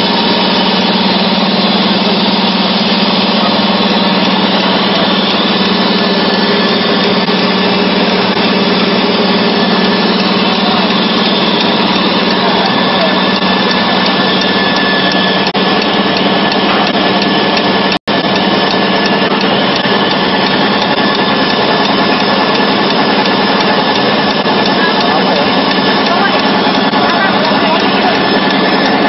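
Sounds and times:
loud machine humming: 0.0s - 29.0s.

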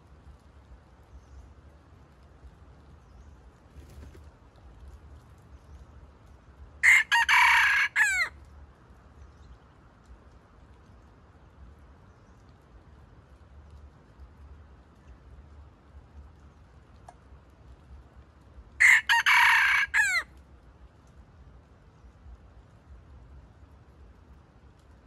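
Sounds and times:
rooster crowing: 6.8s - 8.3s, 18.8s - 20.3s.

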